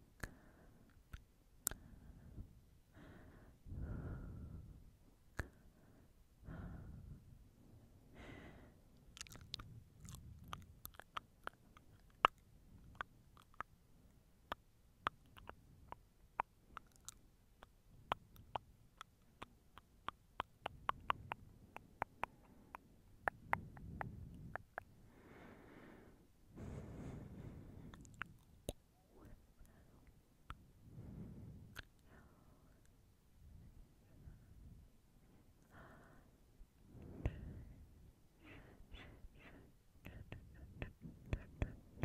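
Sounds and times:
soft breaths: 0.0s - 42.0s
wet mouth clicks: 1.1s - 1.8s, 9.1s - 13.7s, 14.5s - 25.0s, 27.9s - 28.8s, 31.7s - 32.1s.

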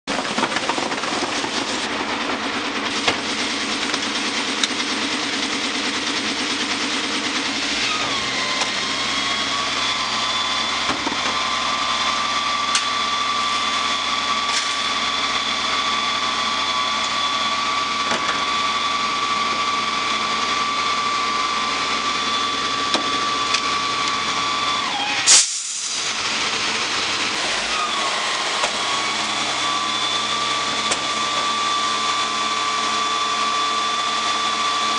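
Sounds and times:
garbage truck engine running: 0.0s - 34.9s
hydraulic tipper whine: 0.1s - 34.9s.

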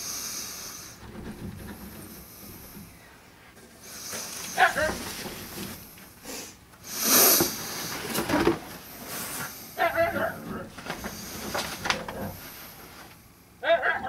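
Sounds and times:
dog whining: 4.6s - 5.0s, 9.8s - 10.7s
cat hissing: 6.2s - 8.2s
light scuffling: 7.9s - 13.2s.

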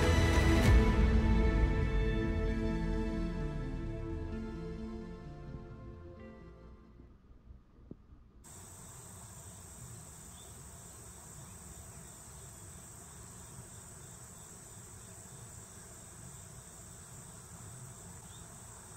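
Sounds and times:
insects trilling: 8.5s - 18.9s.

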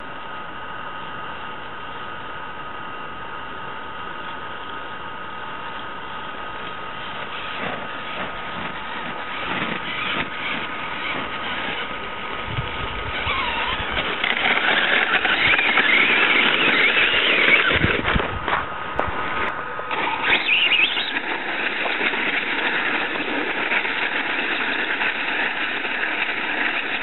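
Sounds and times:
toy car motor and gears whining: 6.7s - 18.3s, 19.9s - 27.0s.

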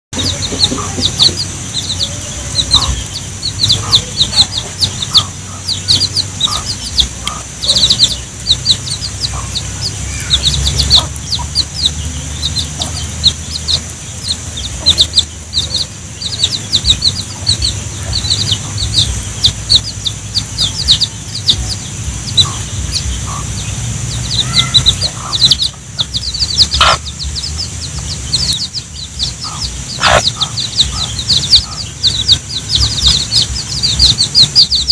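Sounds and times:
chicks peeping: 0.1s - 34.9s
hen clucking: 0.1s - 34.9s
steady high hiss: 0.2s - 34.9s.

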